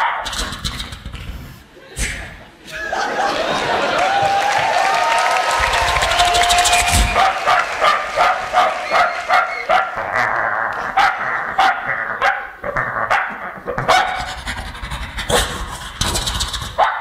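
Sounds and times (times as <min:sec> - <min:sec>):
vocal imitation of dog barking: 0:00.0 - 0:00.8, 0:07.1 - 0:17.0.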